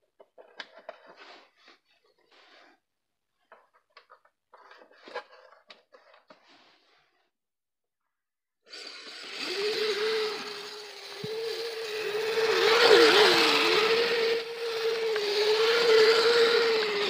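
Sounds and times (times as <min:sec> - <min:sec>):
electric motors whining: 0:08.7 - 0:17.0
gears and plastic tracks rushing: 0:09.4 - 0:17.0.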